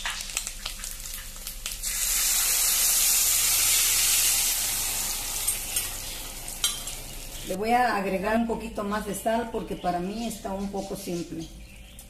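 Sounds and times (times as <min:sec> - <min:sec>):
meat crackling in hot oil: 0:00.0 - 0:07.6
salsa sizzling in pan: 0:00.0 - 0:07.6.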